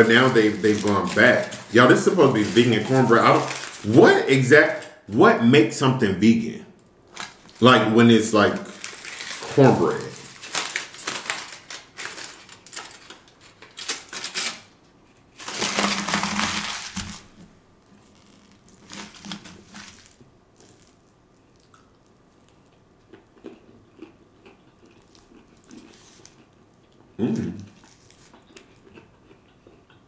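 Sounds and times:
aluminium foil crinkling: 0.0 - 4.9, 7.1 - 22.8, 25.0 - 26.4, 27.7 - 28.8.

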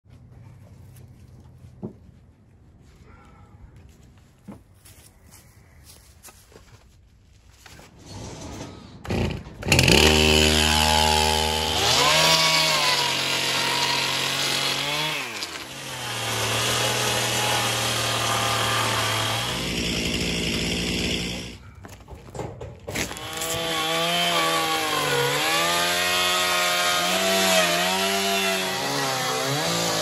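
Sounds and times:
chainsaw engine revving: 9.0 - 21.6, 23.0 - 30.0
chainsaw pull-started: 9.0 - 21.6, 22.9 - 30.0.

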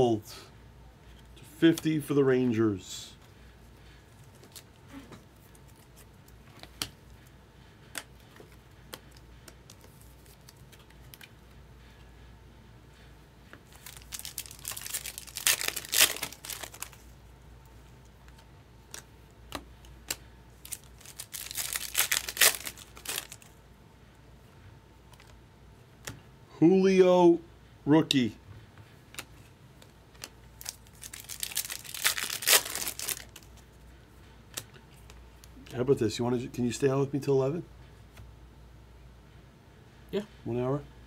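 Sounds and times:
card pack wrappers tearing and crinkling: 9.6 - 11.3, 13.7 - 17.1, 20.0 - 23.5, 30.2 - 33.6.

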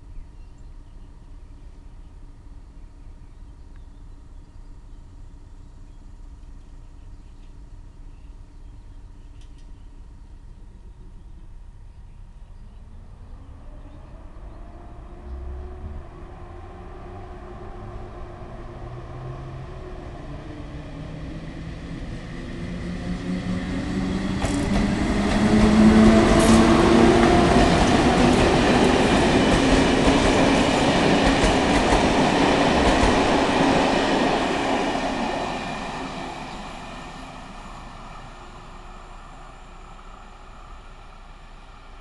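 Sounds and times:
passenger train passing: 12.7 - 42.0.

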